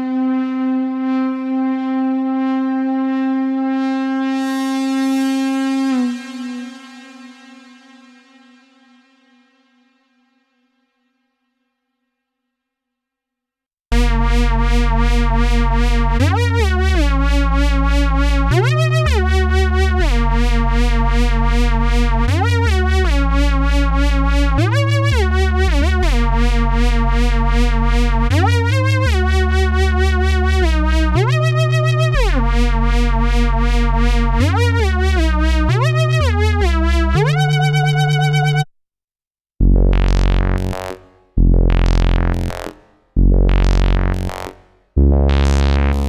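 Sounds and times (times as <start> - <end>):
synthesizer tones swooping in pitch: 0.0 - 8.8, 14.7 - 38.7, 45.2 - 46.0
synthesizer low bass notes: 0.0 - 9.2, 13.9 - 38.7, 39.6 - 46.0.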